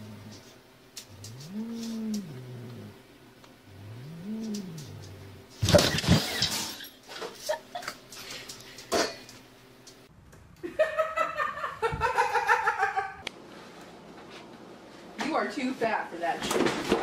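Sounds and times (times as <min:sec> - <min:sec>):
cat growling: 0:00.0 - 0:00.5, 0:01.1 - 0:03.0, 0:03.7 - 0:05.6.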